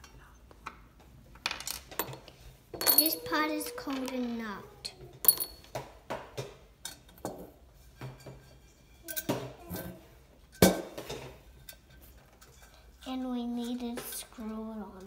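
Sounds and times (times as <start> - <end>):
nuts and bolts clinking on metal: 1.4 - 5.8, 8.1 - 12.8.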